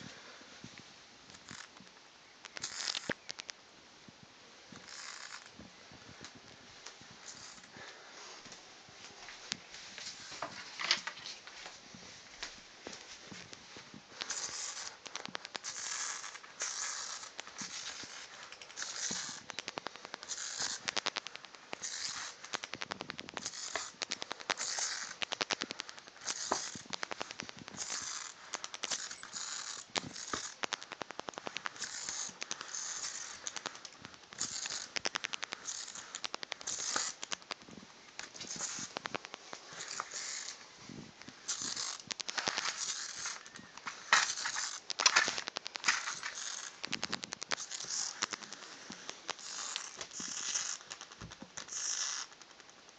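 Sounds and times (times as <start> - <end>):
rapid crackling clicks: 1.3 - 3.6, 4.7 - 8.0, 13.4 - 52.9
bat wings fluttering: 4.8 - 5.5, 7.1 - 7.8, 14.2 - 40.6, 41.4 - 52.6.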